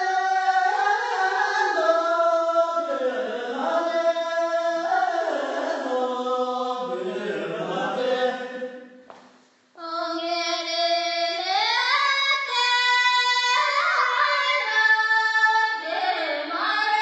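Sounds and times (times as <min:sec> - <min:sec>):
person singing chant-like folk song: 0:00.0 - 0:08.8.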